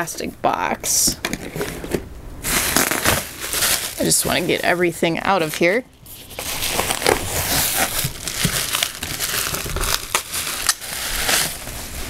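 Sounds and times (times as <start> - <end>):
bubble wrap crinkling: 2.4 - 12.0.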